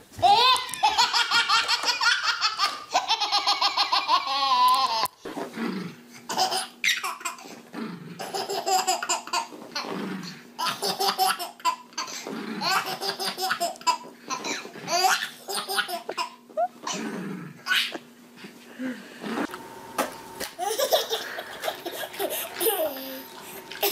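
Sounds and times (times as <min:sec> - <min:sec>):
baby laughing: 0:00.2 - 0:05.2, 0:06.3 - 0:07.5, 0:08.2 - 0:09.9, 0:10.6 - 0:17.0, 0:17.6 - 0:18.1, 0:20.6 - 0:23.9.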